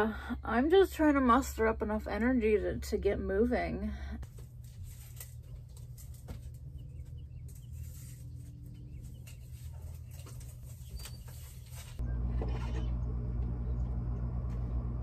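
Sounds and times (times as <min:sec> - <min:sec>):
bird chirps: 0:06.7 - 0:12.2
low rumble: 0:12.0 - 0:15.0.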